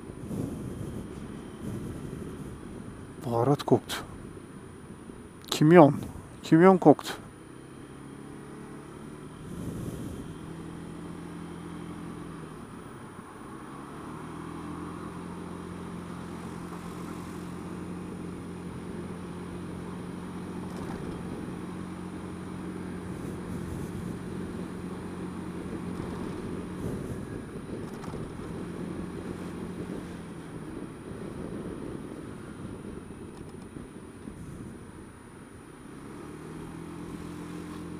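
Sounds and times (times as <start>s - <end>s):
road and wind noise: 0.0s - 37.9s
scooter engine running: 15.2s - 34.8s.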